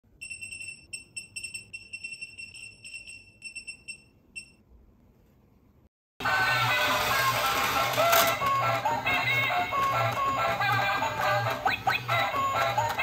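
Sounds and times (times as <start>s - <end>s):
toy high-pitched ringing beeps: 0.2s - 4.6s.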